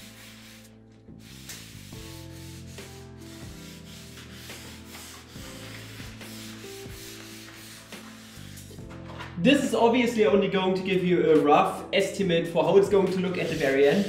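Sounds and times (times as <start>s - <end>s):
damp cloth rubbing on wood: 0.0s - 8.6s, 13.3s - 14.0s
background music with beat: 1.2s - 9.8s.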